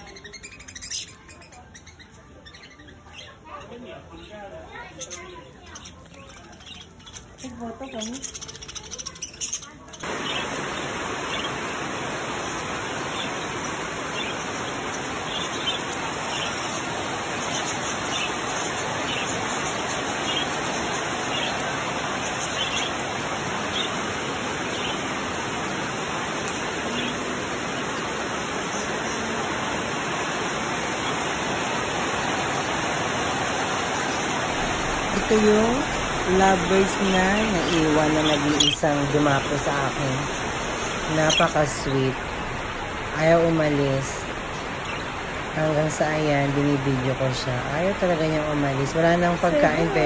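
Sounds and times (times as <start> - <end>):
heavy rain: 10.0 - 50.0
budgerigars chirping: 12.4 - 29.6, 33.8 - 42.0.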